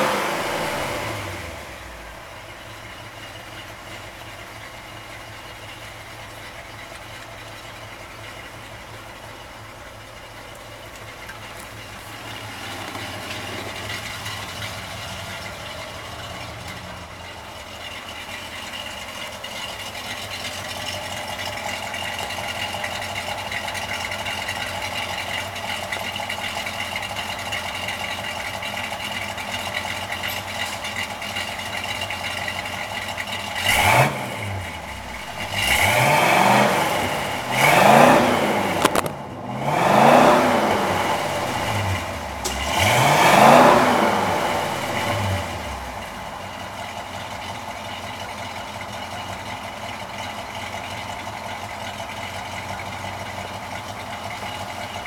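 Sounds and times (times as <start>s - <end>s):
car engine idling and revving: 0.0s - 55.0s
camera falling with a clatter: 38.8s - 39.2s.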